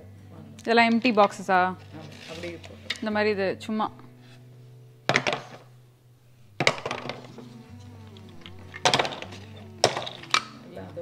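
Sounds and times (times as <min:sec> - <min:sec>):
plastic cases clacking on countertop: 0:05.1 - 0:05.6, 0:06.6 - 0:07.4, 0:08.7 - 0:10.5.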